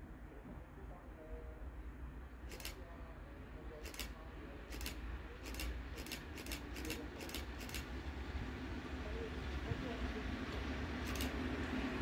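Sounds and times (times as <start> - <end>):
electric locomotive rumble: 3.8 - 12.0.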